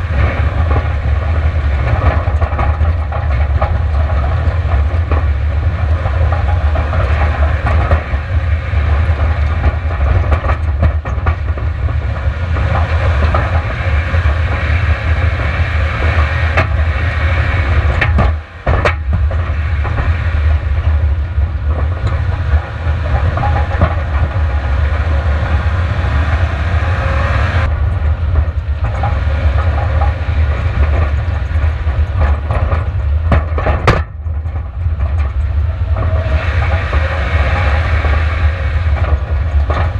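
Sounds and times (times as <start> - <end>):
car engine rumbling: 0.0 - 39.9.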